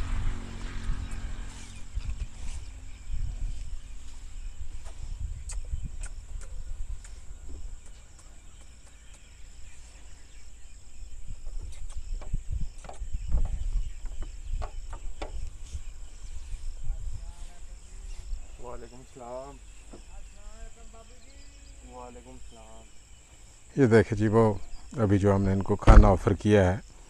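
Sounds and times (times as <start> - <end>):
high insect trill: 0.3 - 27.0
hooves knocking on vehicle floor: 11.5 - 15.5.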